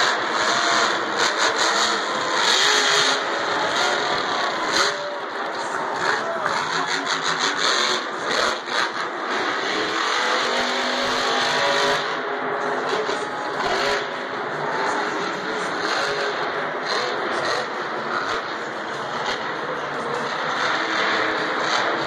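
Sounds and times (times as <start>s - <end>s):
crowd and arena noise: 0.0s - 22.0s
monster truck engine revving: 0.0s - 22.0s.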